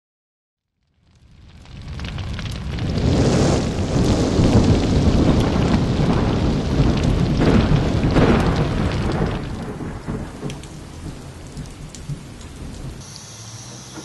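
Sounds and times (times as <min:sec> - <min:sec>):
deep rumble with rushing hiss: 0:02.0 - 0:09.4.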